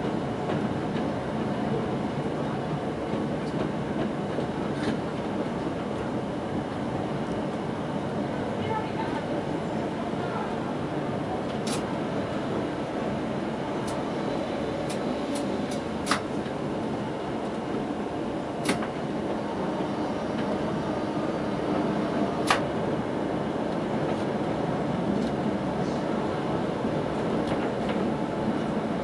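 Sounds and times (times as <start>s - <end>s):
tram rumbling on track: 0.0s - 29.0s.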